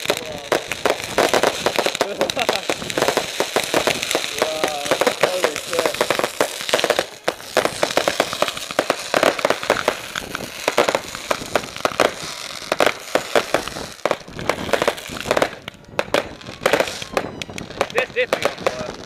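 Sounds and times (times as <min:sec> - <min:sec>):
fireworks crackling and banging: 0:00.0 - 0:19.0.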